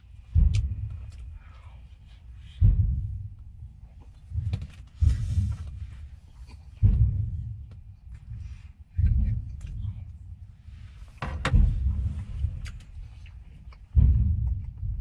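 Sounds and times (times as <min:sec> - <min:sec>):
dull low thumps: 0:00.0 - 0:15.0.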